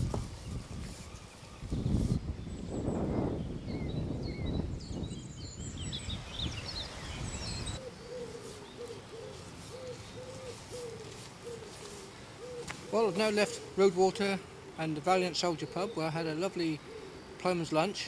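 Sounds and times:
wind rumble on microphone: 0.0 - 7.8
small birds chirping: 0.0 - 18.0
bird cooing: 7.6 - 18.0.

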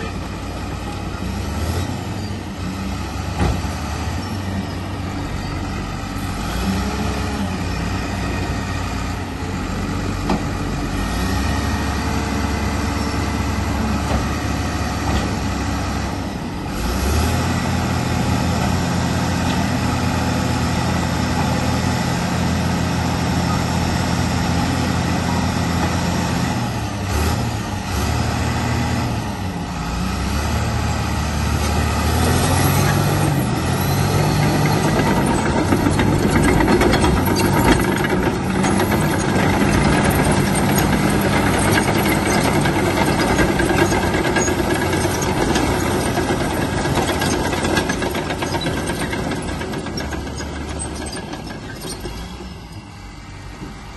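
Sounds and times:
diesel engine running: 0.0 - 53.9
tracks clanking: 31.5 - 53.9.

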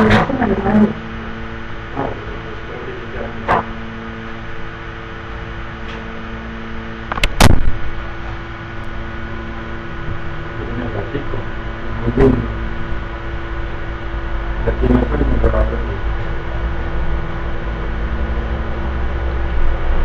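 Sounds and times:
steady hum: 0.0 - 20.0
loud sharp click: 3.4 - 3.8, 5.8 - 6.2, 7.1 - 7.8.

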